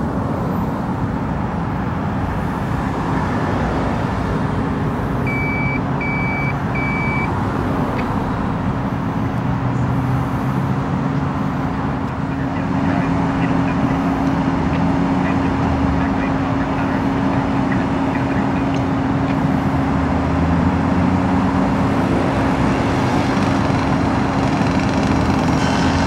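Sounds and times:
fire engine motor running: 0:04.6 - 0:26.0
short electronic beeps: 0:05.2 - 0:07.3.

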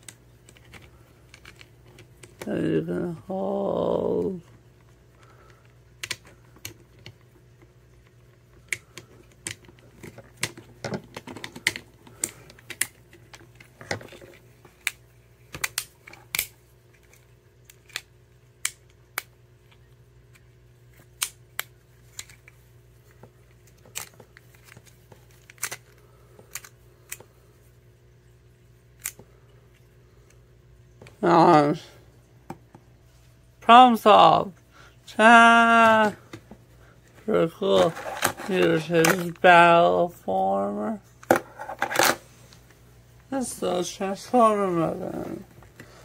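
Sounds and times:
plastic toy clicks and snaps: 0:14.8 - 0:16.5, 0:21.1 - 0:22.5, 0:25.4 - 0:25.8, 0:29.0 - 0:29.2.

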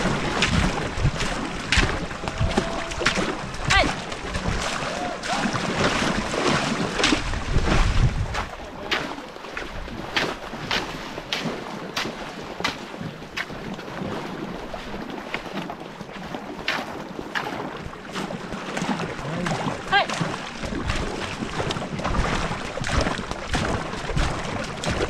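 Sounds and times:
wind buffeting microphone: 0:00.0 - 0:09.0
canoe paddle strokes splashing: 0:00.0 - 0:25.0.

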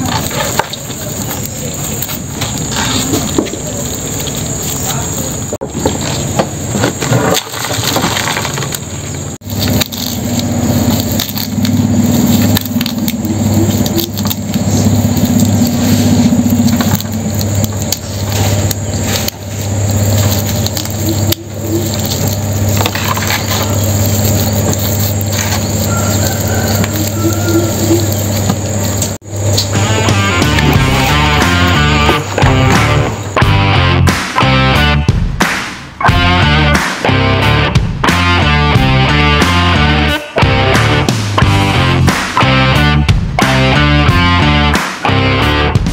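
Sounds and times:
engine running with low hum: 0:00.0 - 0:35.1, 0:36.0 - 0:45.9
loud rushing noise: 0:09.4 - 0:36.0.

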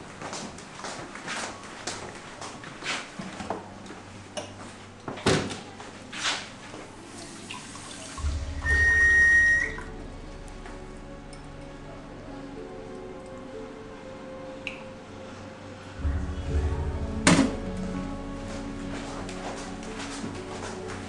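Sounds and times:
loud low rumbling: 0:08.2 - 0:12.8, 0:15.9 - 0:20.0
steady high tone: 0:08.2 - 0:12.8.

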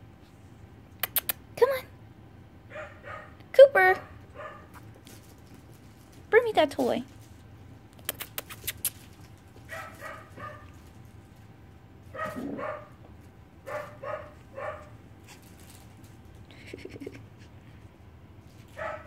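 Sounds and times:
sharp clicks: 0:08.0 - 0:09.0
puppies yapping: 0:12.1 - 0:13.0.

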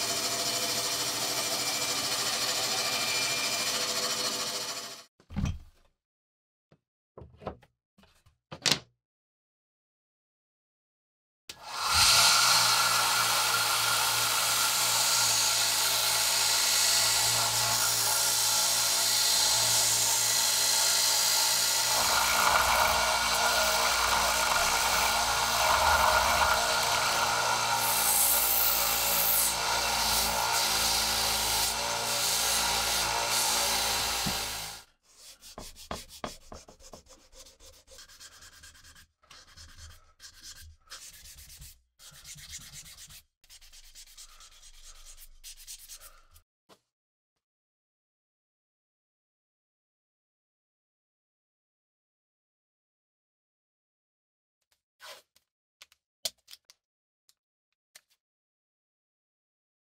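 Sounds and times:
belt sander grinding: 0:00.0 - 0:05.0, 0:11.8 - 0:34.8
hand sanding with sandpaper: 0:35.1 - 0:46.4.

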